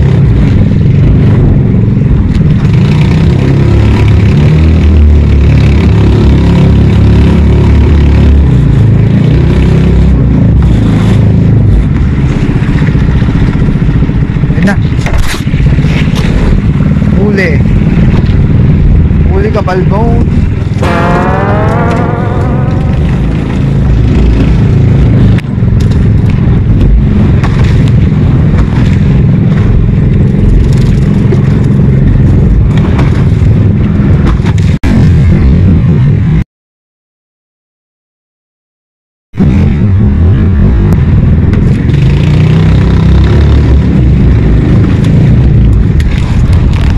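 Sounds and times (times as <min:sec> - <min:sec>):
small boat engine running: 0:00.1 - 0:34.7.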